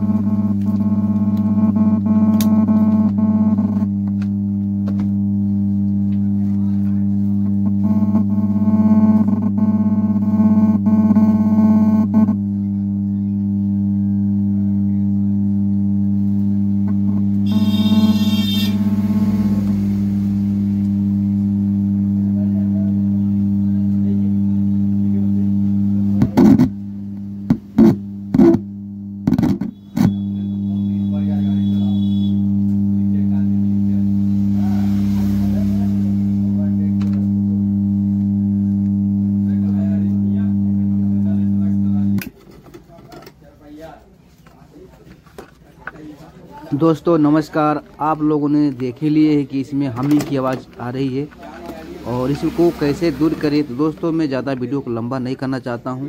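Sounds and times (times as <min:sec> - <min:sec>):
music from amplifier: 0:00.0 - 0:24.2, 0:32.4 - 0:41.4
amplifier mains hum: 0:00.0 - 0:56.0
loud crackling pops: 0:29.2 - 0:30.2.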